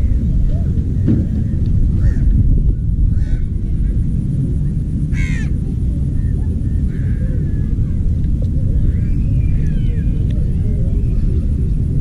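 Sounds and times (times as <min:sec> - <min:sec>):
wind buffeting microphone: 0:00.0 - 0:12.0
crow cawing: 0:02.0 - 0:02.3, 0:03.1 - 0:03.5, 0:05.1 - 0:05.6.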